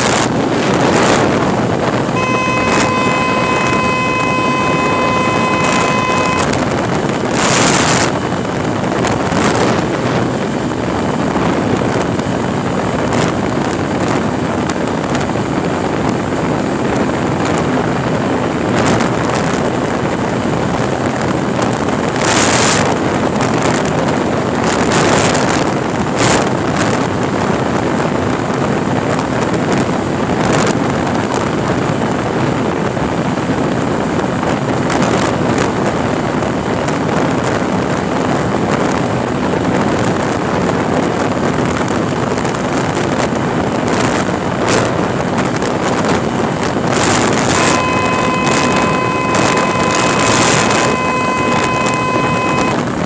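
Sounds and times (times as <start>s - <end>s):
motorcycle engine at high revs: 0.0s - 28.0s, 30.3s - 53.0s
wind rush over microphone: 0.0s - 53.0s
thin steady tone: 2.2s - 6.6s, 47.5s - 52.8s.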